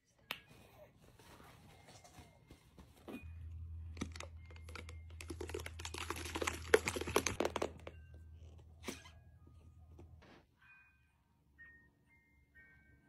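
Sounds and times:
low steady hum: 0.8 - 10.4
plastic bottle clicking and crinkling: 4.0 - 8.0.

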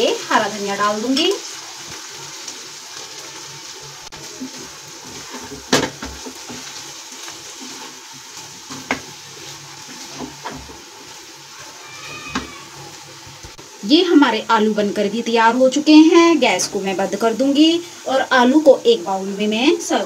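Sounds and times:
potatoes sizzling softly: 0.0 - 20.0
spatula stirring in pan: 0.2 - 13.8.

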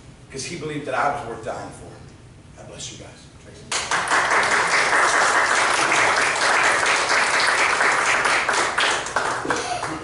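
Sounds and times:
audience applauding: 3.7 - 10.0.

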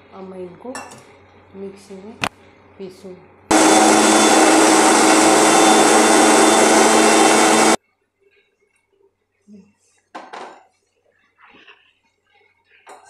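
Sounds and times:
electric mixer grinder running: 3.5 - 7.8.

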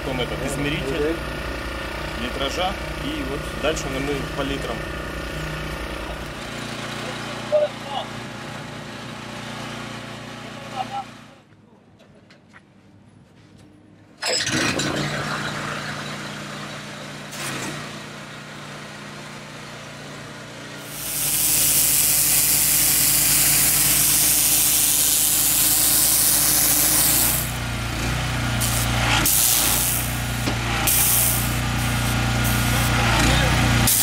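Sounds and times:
pressure washer motor running: 0.0 - 11.0, 14.2 - 34.0
high-pressure spray hissing: 20.8 - 27.6, 28.6 - 33.0.

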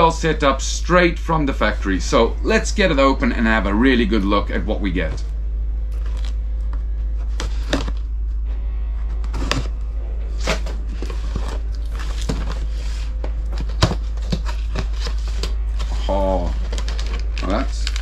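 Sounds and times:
steady low hum: 0.0 - 18.0
packaging rustles and knocks: 5.9 - 8.1, 10.4 - 18.0.

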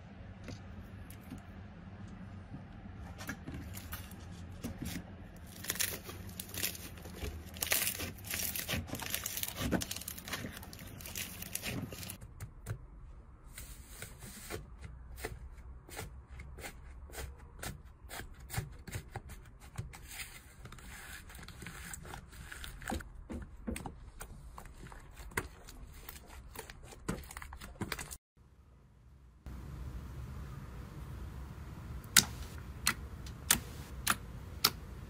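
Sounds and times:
slime crackling and popping: 5.5 - 12.2.

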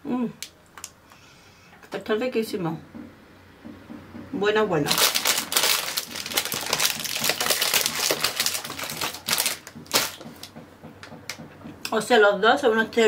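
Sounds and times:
plastic packaging crinkling: 4.9 - 10.5.

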